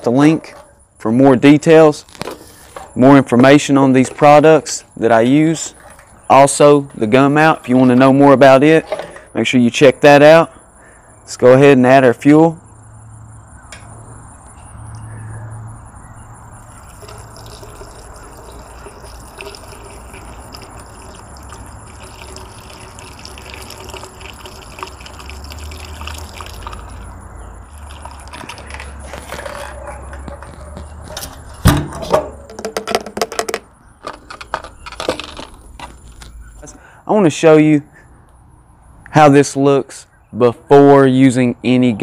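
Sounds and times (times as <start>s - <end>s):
fuel trickling through a funnel: 2.1s - 3.0s, 5.4s - 7.9s, 16.5s - 31.6s
gas can knocking and clattering: 16.8s - 25.2s, 27.8s - 35.6s.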